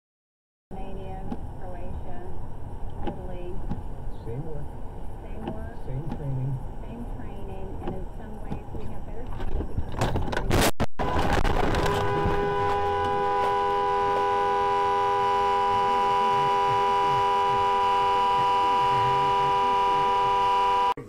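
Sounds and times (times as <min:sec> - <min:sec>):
car horn blaring: 0:11.0 - 0:21.0.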